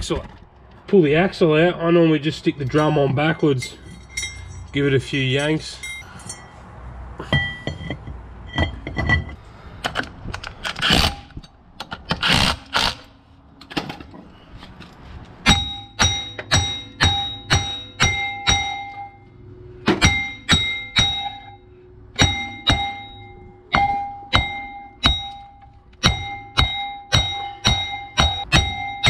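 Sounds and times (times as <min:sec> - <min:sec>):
hammer striking ringing steel drum: 0:15.4 - 0:29.0.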